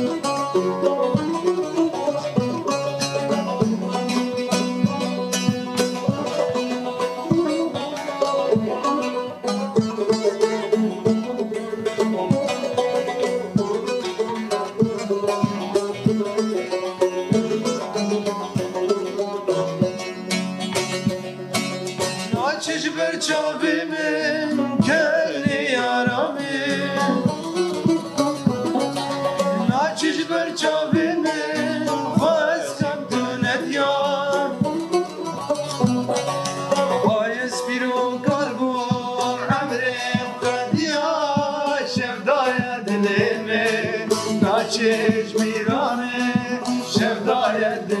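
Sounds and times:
men singing: 0.0 - 9.2, 12.2 - 16.6, 22.3 - 35.0, 36.7 - 48.0
plucked banjo and saz: 0.0 - 48.0.

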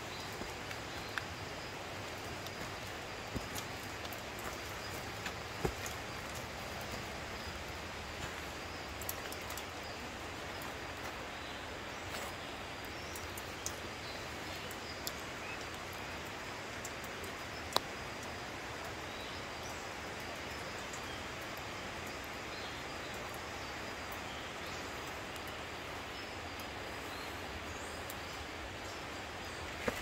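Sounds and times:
footsteps on dirt trail: 0.0 - 9.7, 29.7 - 30.0
outdoor hiss: 0.0 - 30.0.

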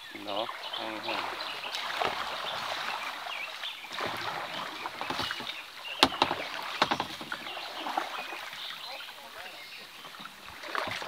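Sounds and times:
paddle strokes splashing: 0.0 - 11.0
water rushing along hull: 0.0 - 11.0
sharp knocks: 5.0 - 7.4.

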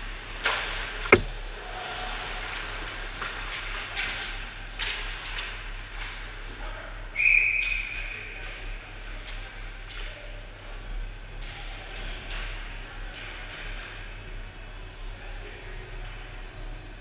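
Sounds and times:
steady low hum: 0.0 - 7.1
puck banging against boards: 0.5 - 1.4
clacks of sticks and puck: 2.4 - 6.6, 7.6 - 10.4, 11.4 - 14.1
referee's whistle: 7.2 - 8.1.

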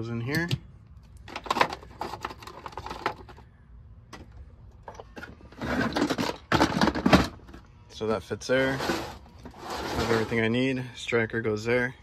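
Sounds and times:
metal tools rattling in a case: 4.9 - 7.4.

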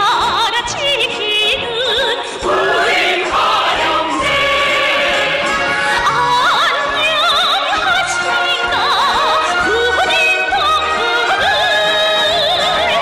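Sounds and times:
woman singing operatically: 0.0 - 2.5, 6.0 - 13.0
musical backing: 0.0 - 13.0
group of singers: 2.2 - 13.0.

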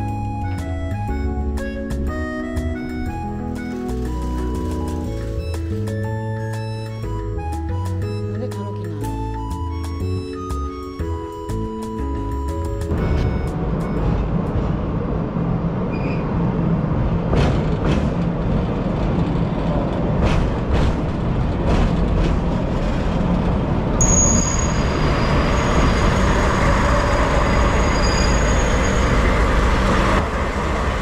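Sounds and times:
train running with low rumble: 0.0 - 31.0
diesel engine running: 24.7 - 31.0.

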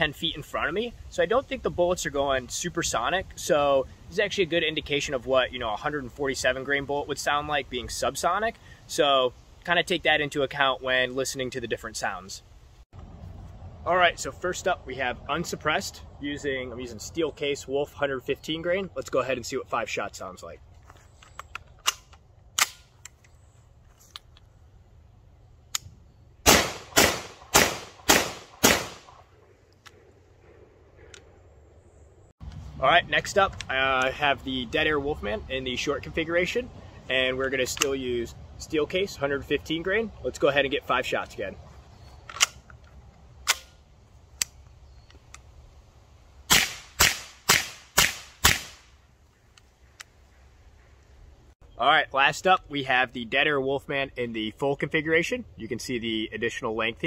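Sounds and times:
gunshots with echo: 26.5 - 29.2.

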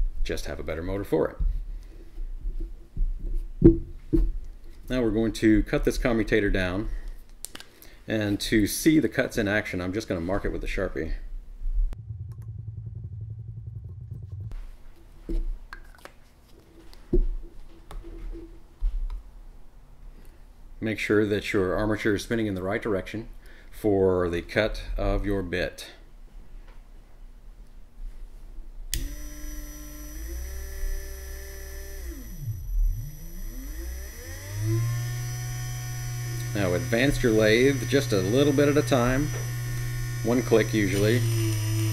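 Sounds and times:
electric motor humming: 28.9 - 41.9.

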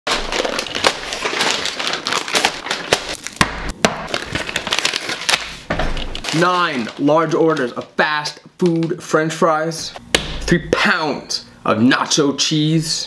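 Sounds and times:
paper bags rustling: 0.1 - 3.4, 4.1 - 7.9.

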